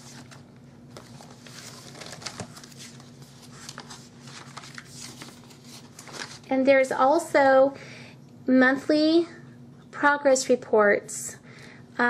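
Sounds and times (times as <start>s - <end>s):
paper pages rustling: 0.0s - 6.5s.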